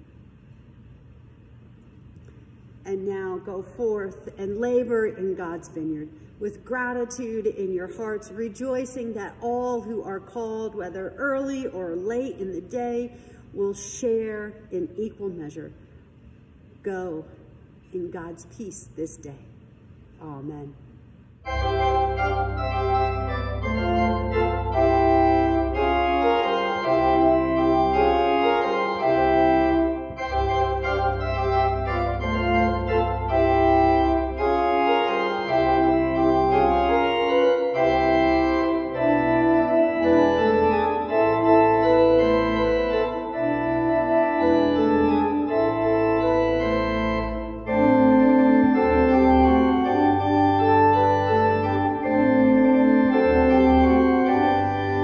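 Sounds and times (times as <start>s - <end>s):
organ music: 21.4s - 55.0s.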